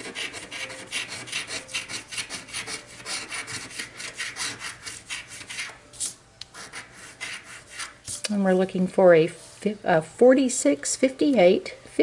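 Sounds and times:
scratching lottery ticket coating: 0:00.0 - 0:08.1.

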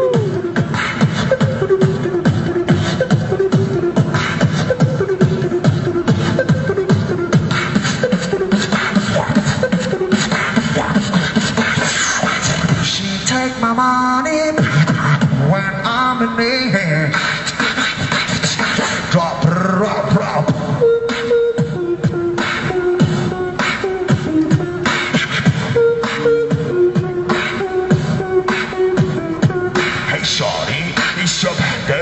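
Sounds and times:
beatboxing into a microphone: 0:00.0 - 0:32.0
held tone changing pitch: 0:20.2 - 0:31.0.

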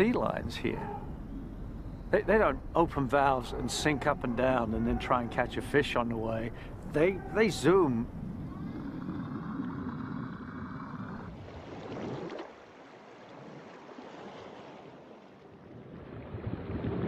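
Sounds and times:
water rushing and splashing: 0:10.9 - 0:17.0.

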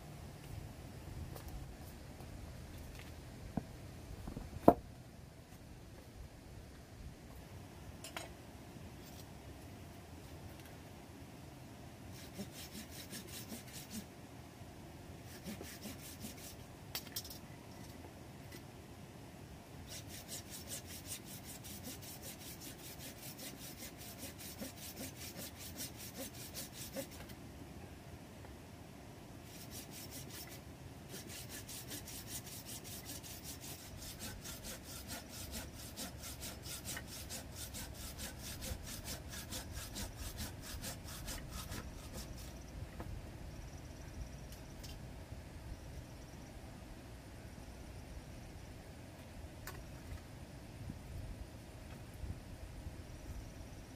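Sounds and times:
machete scraping wooden stick: 0:15.3 - 0:17.4, 0:19.9 - 0:27.3, 0:29.5 - 0:42.6.

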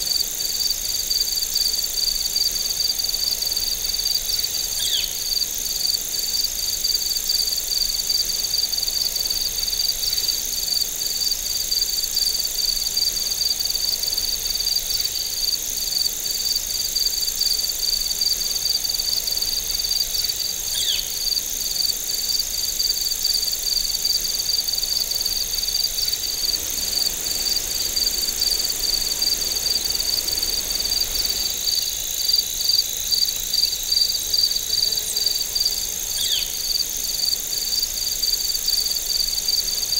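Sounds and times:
cricket chirping: 0:00.0 - 0:39.9
crickets trilling: 0:00.0 - 0:39.9.

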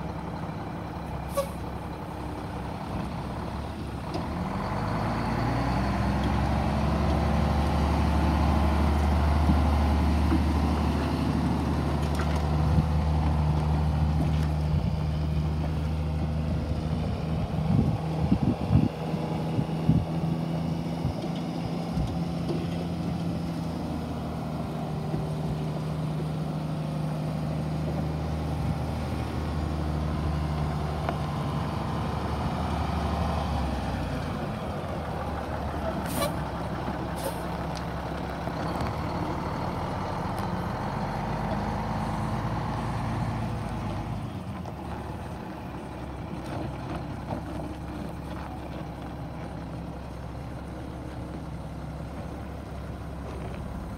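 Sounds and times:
diesel truck engine running: 0:00.0 - 0:53.9
air brake hiss: 0:01.3 - 0:01.6, 0:36.0 - 0:36.4, 0:37.2 - 0:37.5.

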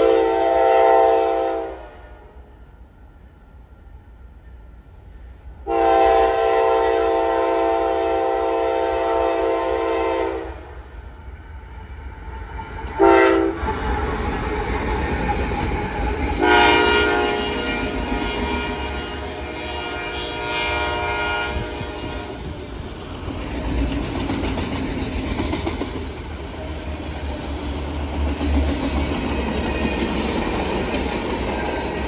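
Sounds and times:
locomotive air horn blasts: 0:00.0 - 0:02.4, 0:05.6 - 0:10.7, 0:12.9 - 0:13.6, 0:16.4 - 0:22.5
freight train rumble: 0:00.0 - 0:32.0.

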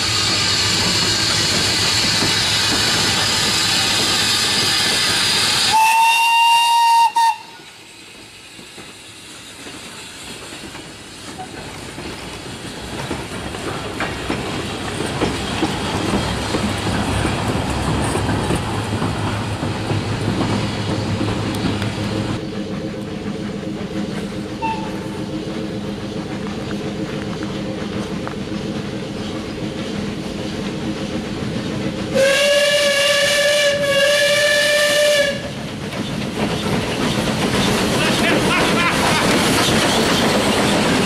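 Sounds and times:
loud steam hiss: 0:00.0 - 0:41.0
steam locomotive and wagons running: 0:00.0 - 0:41.0
steam whistle blast: 0:05.5 - 0:07.7, 0:24.6 - 0:25.1, 0:32.2 - 0:35.5.

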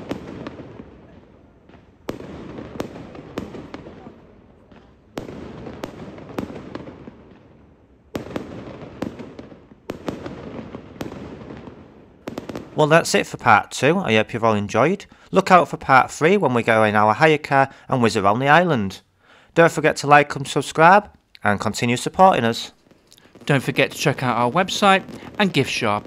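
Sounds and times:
sharp firework pops: 0:00.0 - 0:04.1, 0:04.7 - 0:07.5, 0:08.2 - 0:12.8, 0:22.8 - 0:26.0
firework shells banging: 0:22.6 - 0:26.0.

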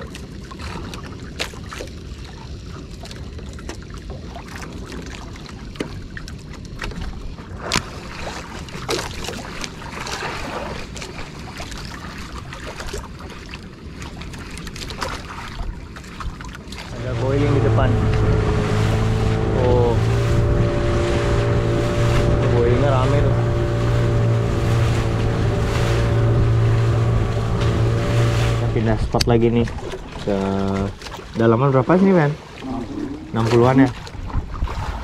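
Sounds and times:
water lapping against boat hull: 0:00.0 - 0:35.0
wind buffeting microphone: 0:15.4 - 0:31.5, 0:32.6 - 0:35.0.

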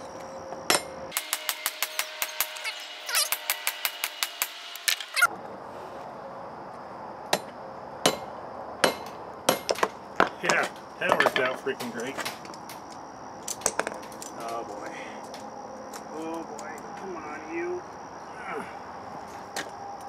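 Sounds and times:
hammer striking metal on anvil: 0:00.7 - 0:05.0, 0:07.3 - 0:09.9.

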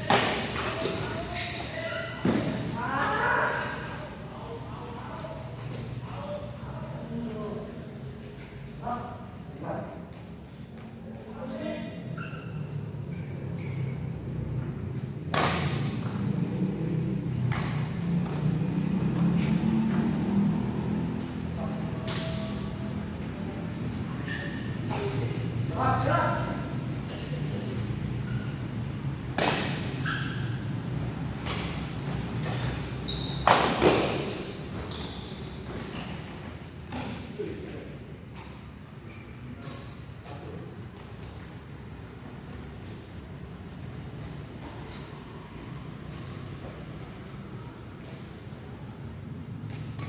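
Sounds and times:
racket hitting shuttlecock: 0:00.0 - 0:01.0, 0:15.3 - 0:16.1, 0:29.3 - 0:30.1, 0:31.4 - 0:34.4
shoes squeaking on floor: 0:00.0 - 0:02.8, 0:05.5 - 0:06.0, 0:11.5 - 0:14.8, 0:24.1 - 0:25.5, 0:26.3 - 0:37.2, 0:38.4 - 0:40.4
low hall hum: 0:00.0 - 0:50.0.

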